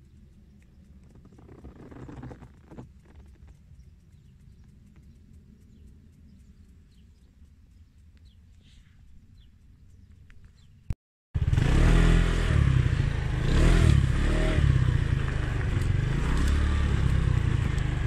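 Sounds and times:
scooter rumble: 0.0s - 5.4s, 11.4s - 18.0s
light clicks: 0.0s - 11.0s.

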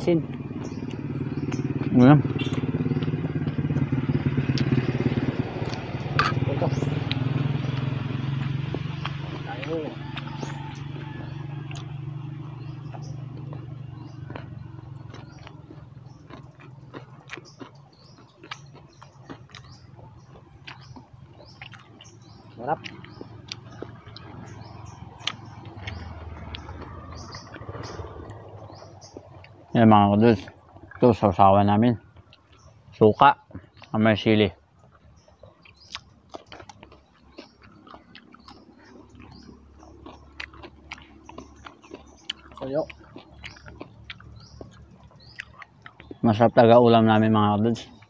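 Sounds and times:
chewing and mouth smacks: 5.4s - 6.4s, 7.0s - 29.7s, 30.4s - 31.2s, 32.0s - 34.0s, 34.7s - 46.4s.

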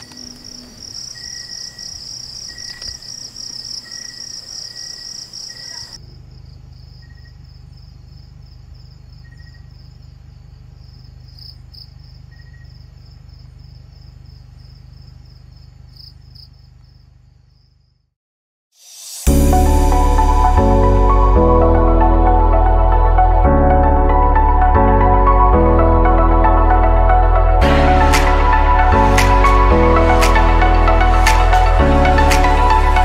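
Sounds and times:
crickets chirping: 0.0s - 18.1s.

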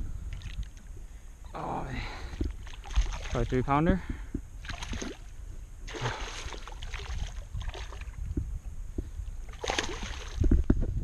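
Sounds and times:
fish thrashing and splashing: 2.5s - 3.5s, 4.6s - 5.3s, 5.9s - 8.2s, 9.5s - 10.4s.

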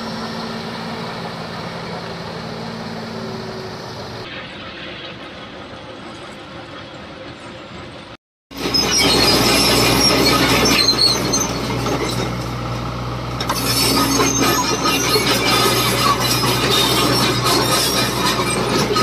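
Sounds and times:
excavator diesel engine humming: 0.0s - 19.0s
metallic scraping and squeals: 8.6s - 12.7s, 13.4s - 19.0s.

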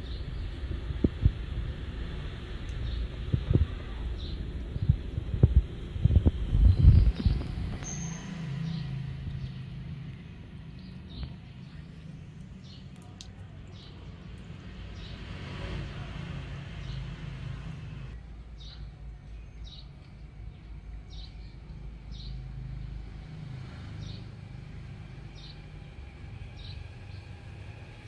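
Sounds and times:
low motor hum: 0.0s - 15.4s
bird chirping: 6.5s - 9.6s.

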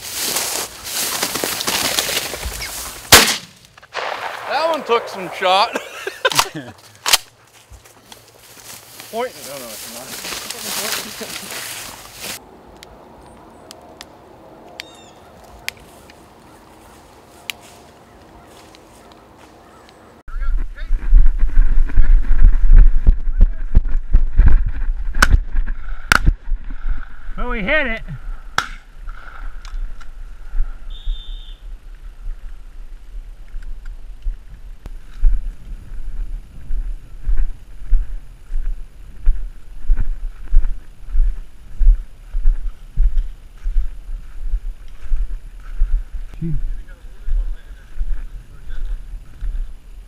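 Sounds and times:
faint outdoor background: 0.0s - 50.0s
wind buffeting microphone: 20.3s - 27.4s, 31.6s - 50.0s.

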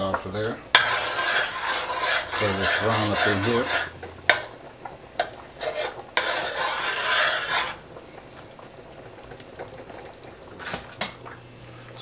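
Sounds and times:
spoon scraping garlic press: 0.8s - 3.9s, 5.6s - 7.8s.

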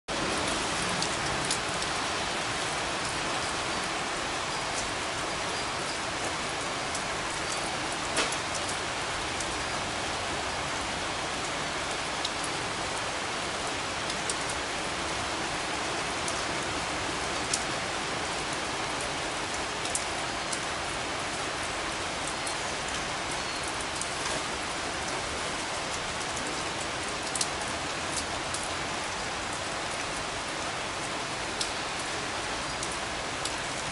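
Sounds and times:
steady rain hiss: 0.1s - 33.9s.

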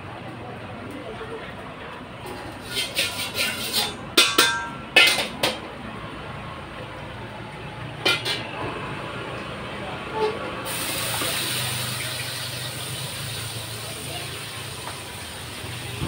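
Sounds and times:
utensil clanking against wok: 2.2s - 5.8s, 8.0s - 8.6s
frying sizzle: 10.7s - 16.0s.

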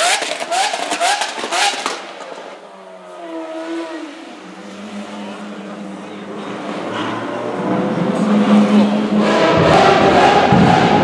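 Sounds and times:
sports car engine revving: 3.2s - 11.0s.

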